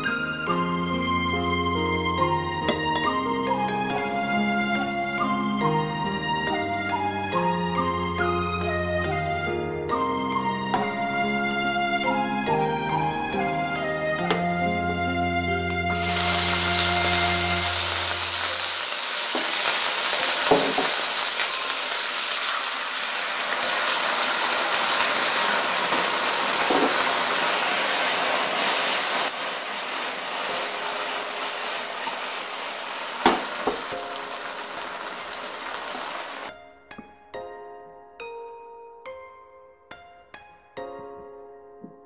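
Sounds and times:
prawns sizzling in hot oil: 15.9 - 36.5
knocks against pan: 20.5 - 20.9, 33.2 - 33.8.

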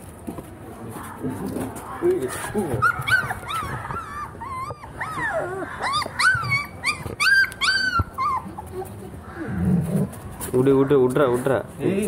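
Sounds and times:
dog whimpering and whining: 2.7 - 9.0.

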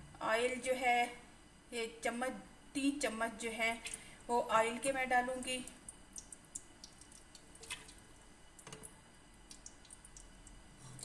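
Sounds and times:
oil dripping: 5.8 - 10.6.

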